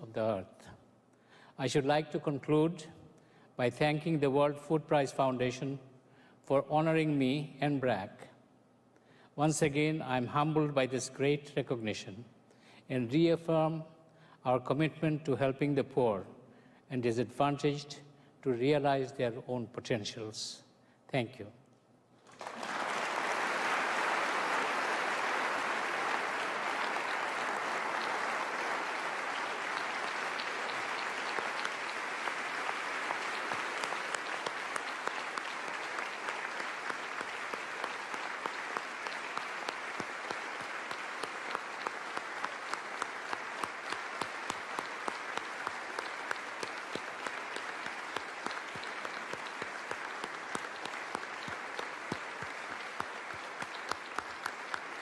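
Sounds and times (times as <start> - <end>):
large audience applauding: 22.2 - 55.0.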